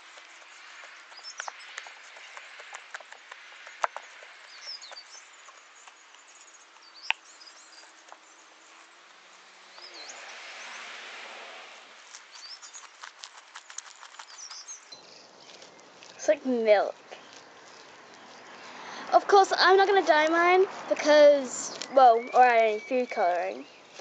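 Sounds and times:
small birds chirping: 0:00.0 - 0:11.0, 0:12.0 - 0:24.0.

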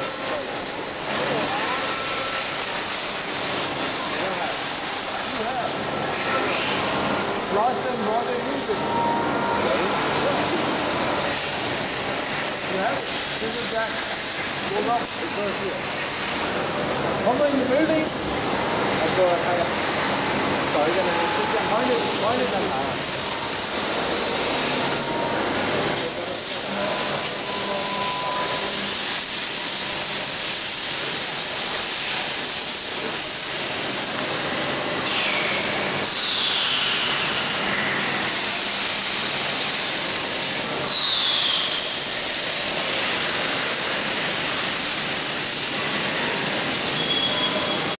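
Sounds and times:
industrial machinery hissing: 0:00.0 - 0:48.0.

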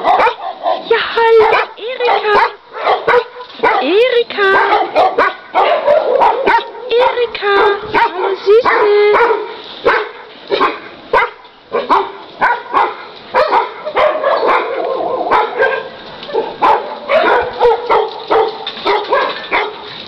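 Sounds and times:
dogs barking: 0:00.0 - 0:19.9.

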